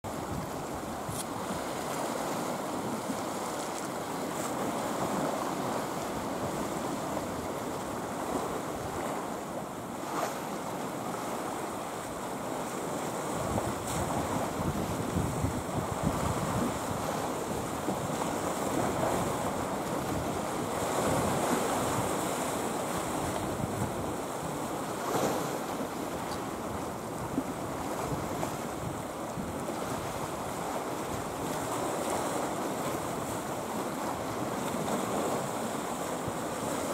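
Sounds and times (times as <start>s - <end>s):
wind buffeting microphone: 0.1s - 3.6s, 13.2s - 36.9s
sea waves washing on rocks: 0.1s - 36.9s.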